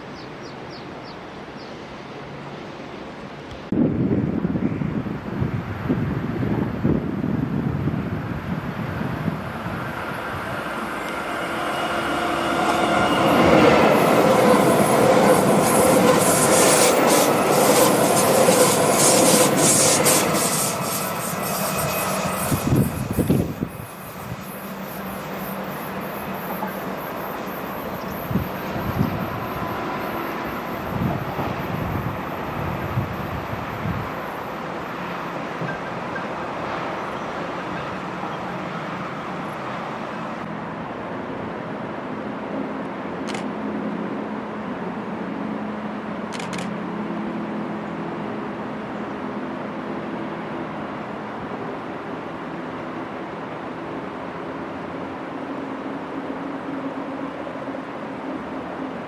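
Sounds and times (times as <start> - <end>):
train running on rails: 0.0 - 59.0.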